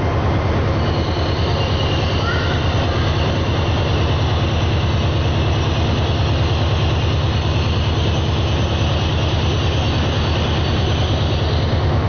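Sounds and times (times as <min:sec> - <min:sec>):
diesel train engine rumbling: 0:00.0 - 0:12.0.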